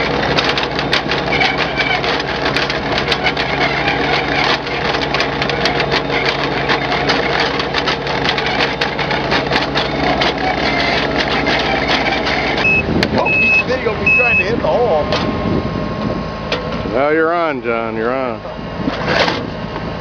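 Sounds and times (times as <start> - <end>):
soil and stubble crackling: 0.0 - 14.6
tractor engine drone: 0.0 - 20.0.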